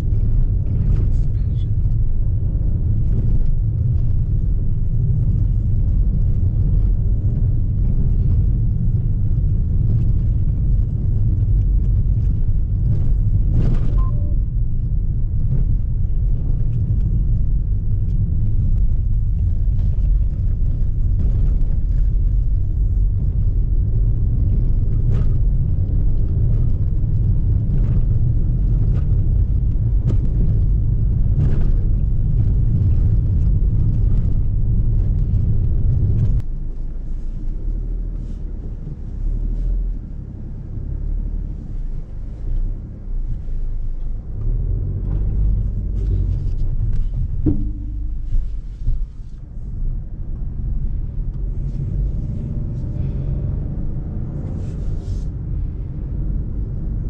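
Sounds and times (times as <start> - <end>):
car rumble on rough ground: 0.0 - 57.0
knocks and rattles over bumps: 43.6 - 51.3.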